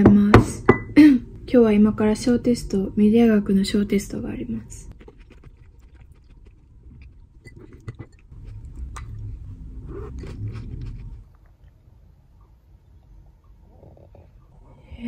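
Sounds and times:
chewing: 4.9 - 12.5.

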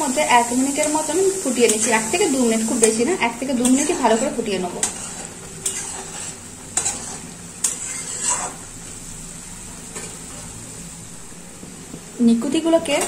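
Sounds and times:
spatula scraping metal pan: 1.6 - 8.7.

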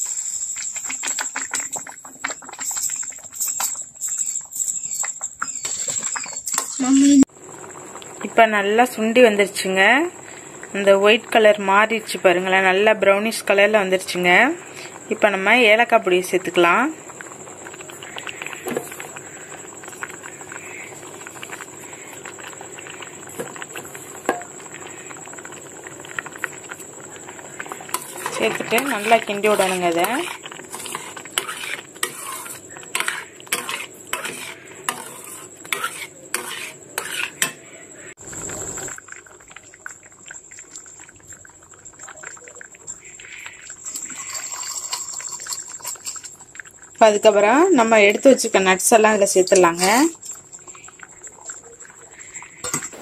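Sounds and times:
milk bubbling in a pan: 0.0 - 53.0
spoon scraping a metal pan: 0.7 - 6.9, 27.9 - 37.7, 49.5 - 50.2, 52.2 - 53.0.

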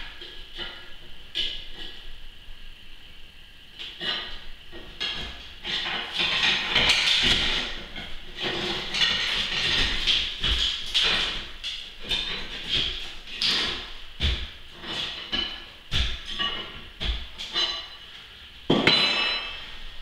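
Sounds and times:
scraping and grinding glass blocks: 3.8 - 19.8
dull thumps: 8.4 - 17.4.

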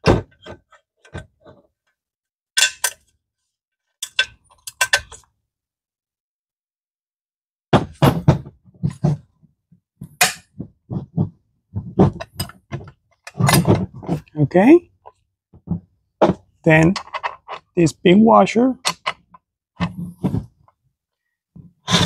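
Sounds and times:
metal parts clicking and knocking: 4.0 - 5.3, 16.8 - 17.7, 18.8 - 20.0.

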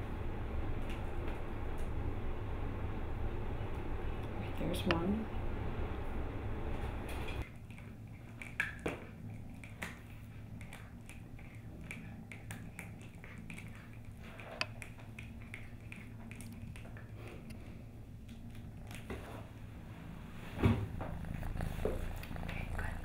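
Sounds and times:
steady low hum: 0.0 - 23.0
paws clicking on plastic: 7.4 - 17.6.

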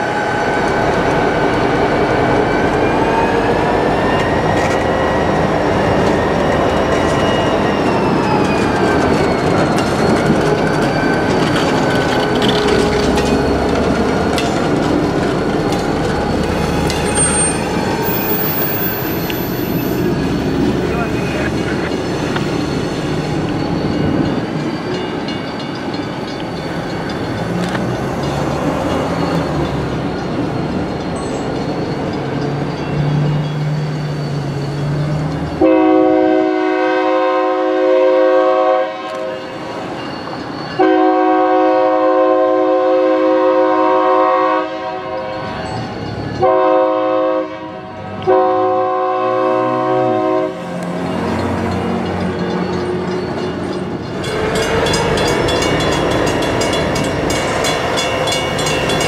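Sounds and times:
diesel locomotive rumbling past: 0.0 - 59.0
shrill train air horn blasts: 35.6 - 39.7, 40.8 - 45.6, 46.4 - 50.8.

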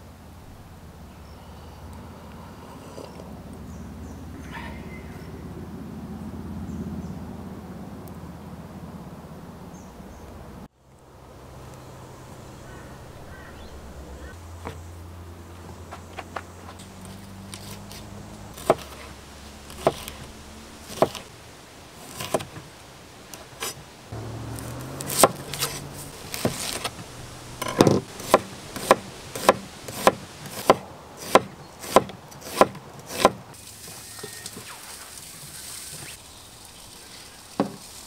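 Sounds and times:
sharp wooden knocks: 27.6 - 33.4.

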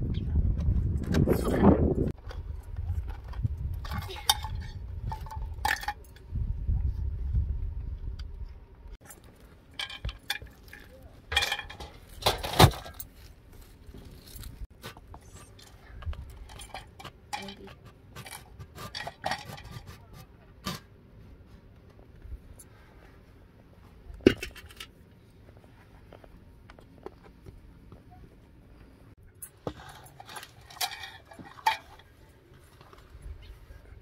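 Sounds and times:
small metal clinks and scrapes: 2.3 - 6.3, 9.0 - 20.9, 29.2 - 33.6.

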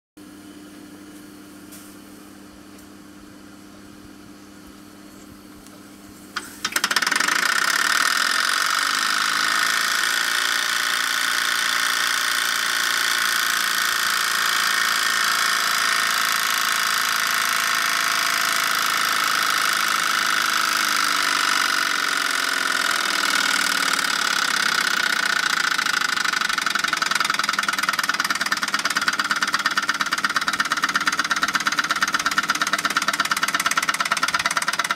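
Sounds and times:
faint steady hum: 0.2 - 6.8
fast exhaust beats: 18.5 - 34.9.

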